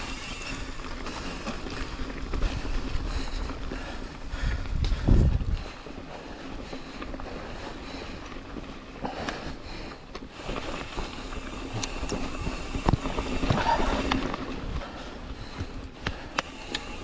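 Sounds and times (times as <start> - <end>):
bicycle tyre noise: 0.0 - 17.0
bike knocking and rattling: 0.0 - 17.0
wind on microphone: 4.4 - 5.8.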